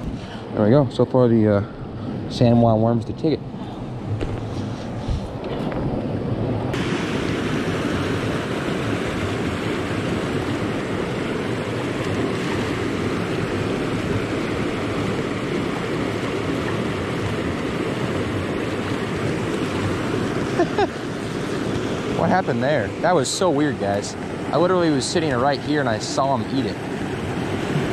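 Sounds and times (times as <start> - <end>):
water rushing over rocks: 6.7 - 27.9.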